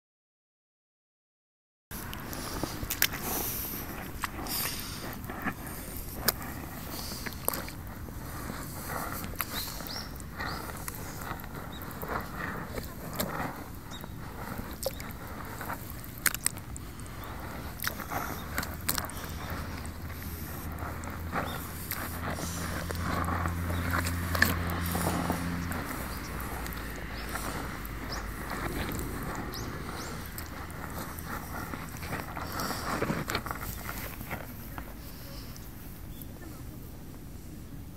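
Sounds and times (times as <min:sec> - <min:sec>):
steady low rumble: 0:01.9 - 0:37.9
low steady hum: 0:02.0 - 0:37.9
boots squelching in mud: 0:14.8 - 0:35.0.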